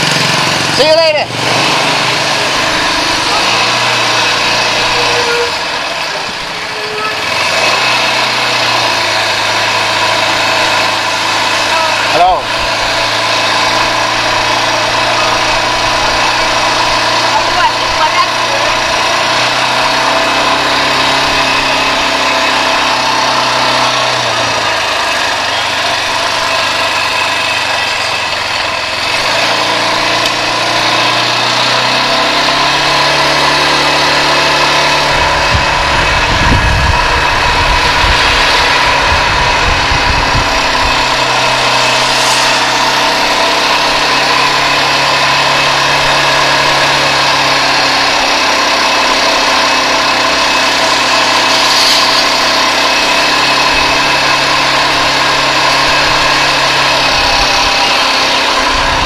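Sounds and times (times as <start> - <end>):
quad bike engine running: 0.0 - 59.0
low rumble: 35.1 - 45.0.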